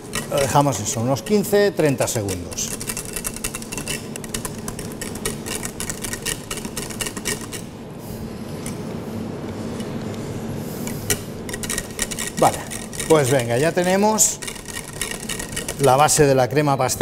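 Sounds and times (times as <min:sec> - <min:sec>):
whisk ticking against a pan: 0:00.0 - 0:07.6, 0:11.5 - 0:16.4
steady hum: 0:00.0 - 0:17.0.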